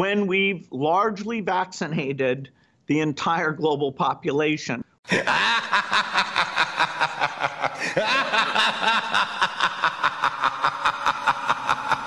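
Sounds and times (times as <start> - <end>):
man cackling laughter: 5.1 - 12.0.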